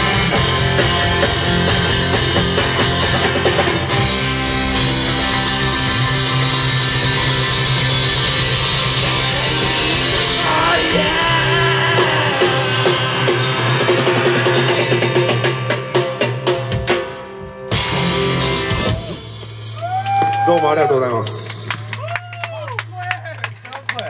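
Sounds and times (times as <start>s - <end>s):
live rock band playing: 0.0s - 22.0s
person singing: 9.2s - 15.1s.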